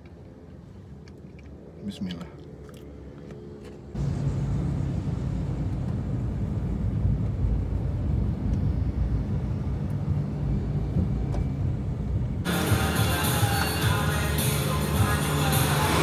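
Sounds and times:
road noise rumble: 0.0s - 16.0s.

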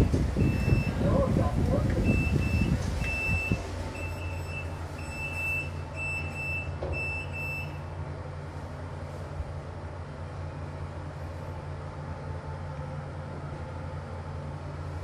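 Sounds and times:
lift door beeper: 0.0s - 1.2s, 2.0s - 8.0s
low hum of lift car: 0.0s - 15.0s.

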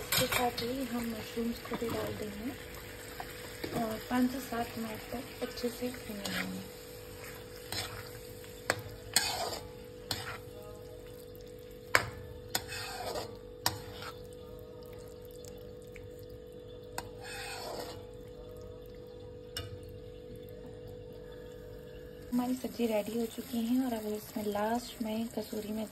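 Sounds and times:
spoon scraping in pan: 3.1s - 10.7s, 11.9s - 14.4s, 17.0s - 18.2s.

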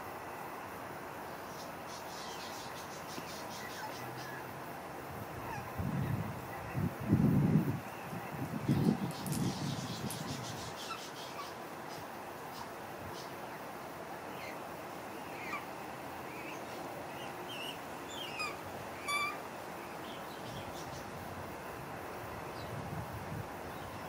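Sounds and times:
outdoor background noise: 0.0s - 24.0s
birds chirping and whistling: 17.2s - 19.4s.

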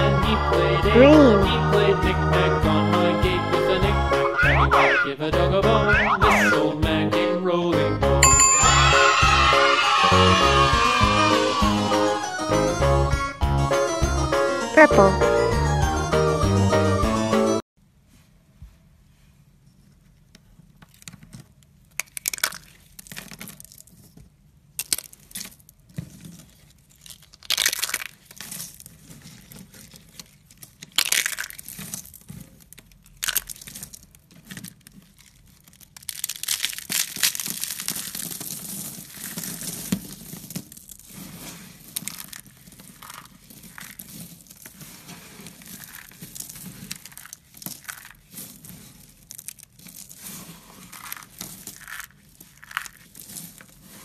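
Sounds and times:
crunching and rustling shards: 20.9s - 54.0s
brittle material snapping: 21.9s - 23.8s, 24.8s - 25.6s, 26.9s - 28.8s, 30.0s - 38.8s
flakes crackling when rubbed: 25.0s - 54.0s.

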